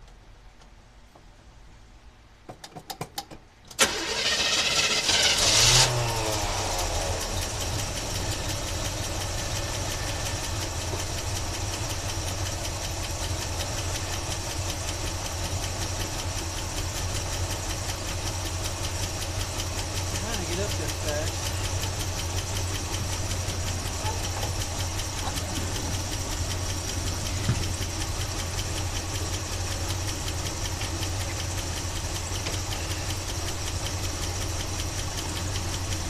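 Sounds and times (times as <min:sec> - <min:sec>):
engine cranking clicks: 0:02.6 - 0:06.0, 0:07.4 - 0:36.0
car engine starting and idling: 0:03.6 - 0:36.0.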